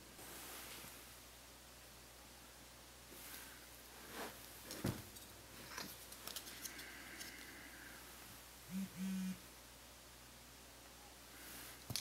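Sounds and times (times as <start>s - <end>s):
cable and card clicks and rustles: 4.6s - 7.5s
short low hums: 8.7s - 9.4s.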